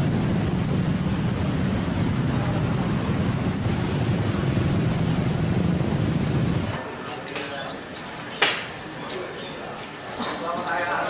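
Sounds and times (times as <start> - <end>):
floodwater rushing: 0.0 - 6.8.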